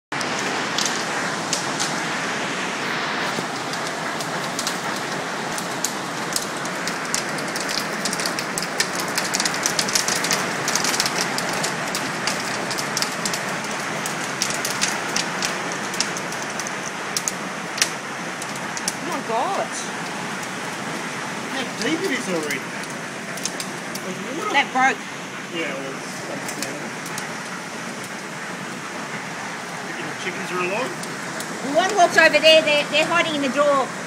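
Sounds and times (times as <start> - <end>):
hail falling: 0.2 - 34.0
hailstones clicking on hard surfaces: 0.2 - 34.0.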